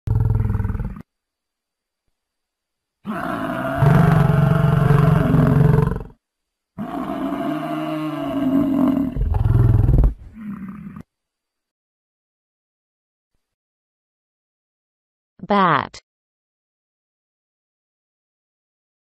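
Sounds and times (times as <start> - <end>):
bison bellowing: 3.1 - 6.0.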